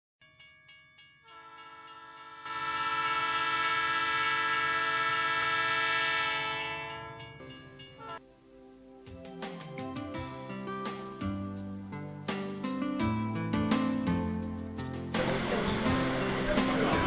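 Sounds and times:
train horn: 1.2s - 7.3s.

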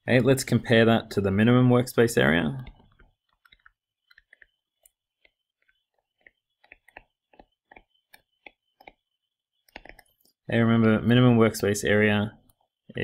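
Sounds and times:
stylus tapping on tablet screen: 2.6s - 10.1s.

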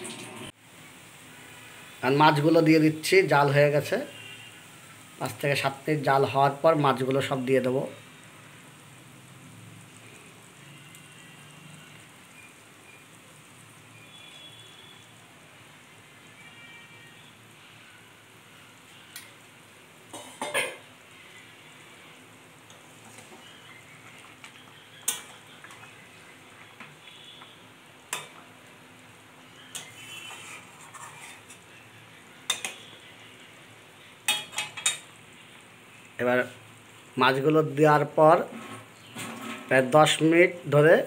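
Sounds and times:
faint sizzle: 0.0s - 41.0s
metal spatula scraping a pan: 29.6s - 31.8s, 38.4s - 39.8s.

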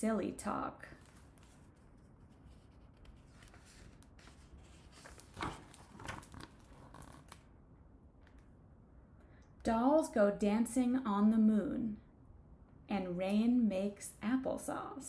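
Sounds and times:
paper pages rustling: 1.0s - 7.4s.

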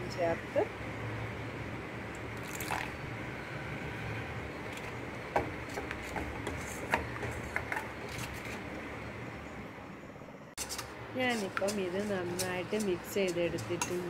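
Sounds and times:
steady low hum: 0.0s - 14.0s
spoon stirring batter in bowl: 10.6s - 14.0s.

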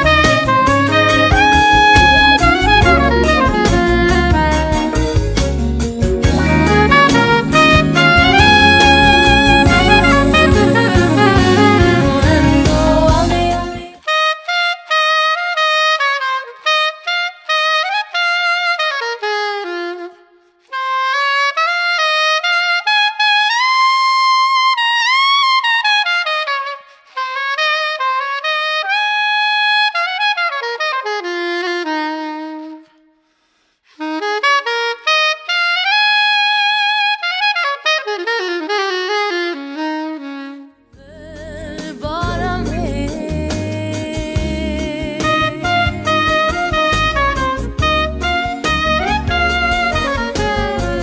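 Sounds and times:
soprano saxophone melody: 0.0s - 51.0s.

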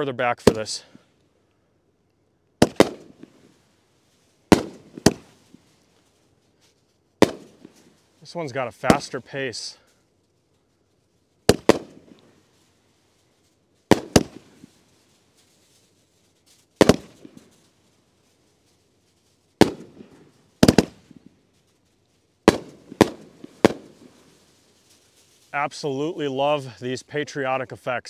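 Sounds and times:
firework booms with echo: 2.6s - 3.5s, 4.5s - 5.7s, 7.2s - 7.9s, 11.5s - 12.2s, 13.9s - 14.8s, 16.8s - 17.6s, 19.6s - 21.2s, 22.5s - 24.4s.

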